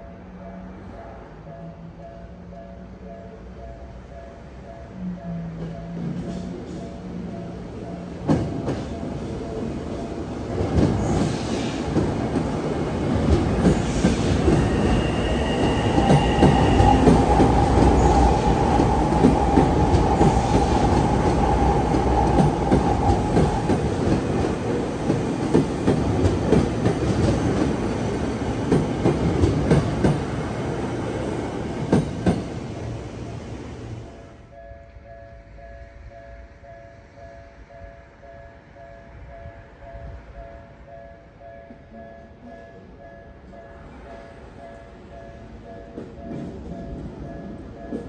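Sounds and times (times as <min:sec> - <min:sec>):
train wheel squeal: 0:13.7 - 0:23.7.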